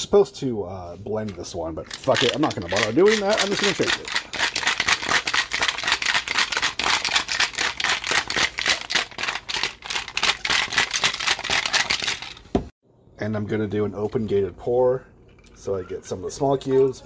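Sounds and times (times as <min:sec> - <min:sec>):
ice rattling in cocktail shaker: 0:01.3 - 0:12.4.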